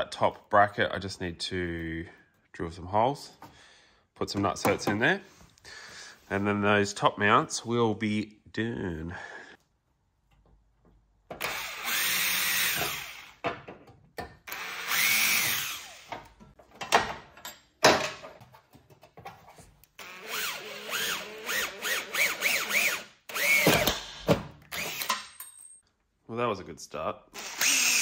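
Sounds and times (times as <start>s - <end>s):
cordless drill boring into steel: 11.4s - 13.4s, 14.5s - 16.2s, 20.0s - 23.9s, 24.7s - 25.2s, 27.4s - 28.0s.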